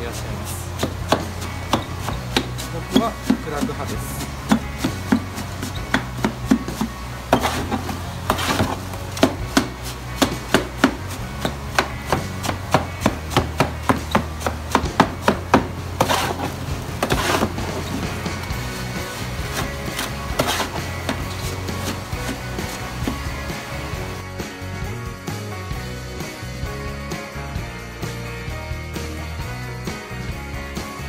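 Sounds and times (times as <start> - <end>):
blade scraping in plastic tub: 0.1 - 23.4.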